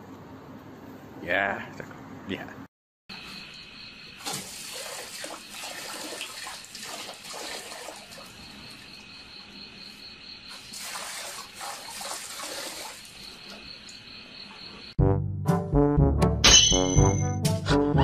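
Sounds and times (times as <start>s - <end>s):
crickets chirping: 3.1s - 15.0s
water splashing into metal bucket: 4.2s - 8.9s, 10.5s - 13.7s.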